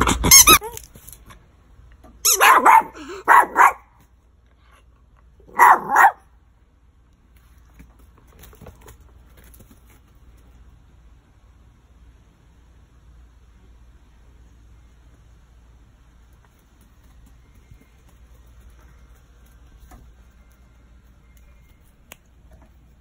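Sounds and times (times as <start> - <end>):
rubber squeaky toy squeaking: 0.0 - 0.9
small dog barking: 2.2 - 4.0, 5.4 - 6.3.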